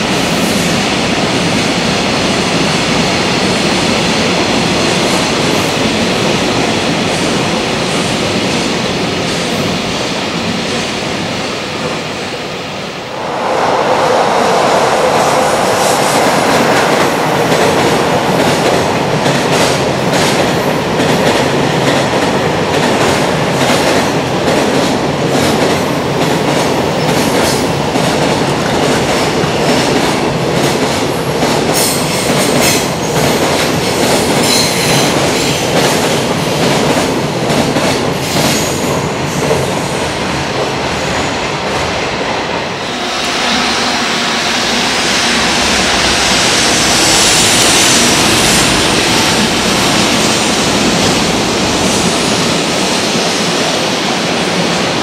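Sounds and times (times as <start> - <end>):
freight train rumbling past: 0.0 - 55.0
even rushing noise: 10.6 - 18.9, 41.9 - 55.0.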